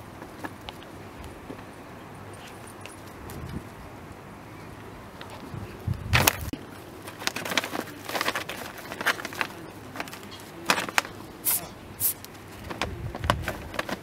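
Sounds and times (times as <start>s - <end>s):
paper bag crinkling and rustling: 6.2s - 11.6s.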